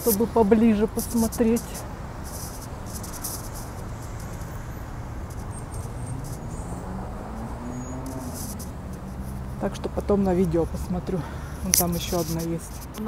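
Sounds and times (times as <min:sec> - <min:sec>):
steady low street rumble: 0:00.0 - 0:13.0
brief rustles: 0:01.0 - 0:04.6, 0:07.4 - 0:09.6, 0:11.6 - 0:13.0.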